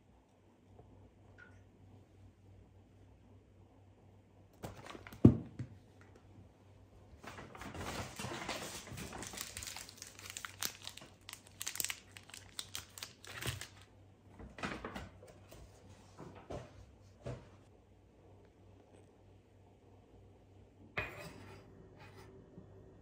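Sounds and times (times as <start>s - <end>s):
plastic wrappers crinkling: 7.4s - 13.9s.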